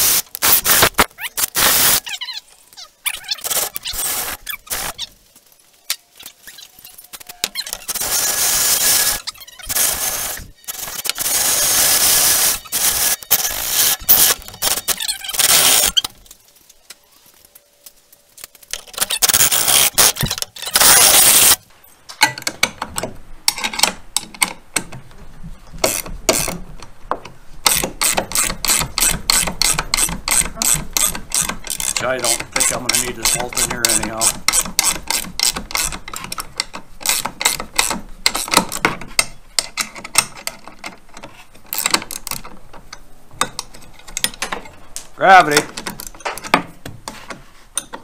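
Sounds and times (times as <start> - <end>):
ratchet wrench clicking: 7.7 - 16.0, 27.7 - 38.9
power drill boring through metal: 7.9 - 14.4.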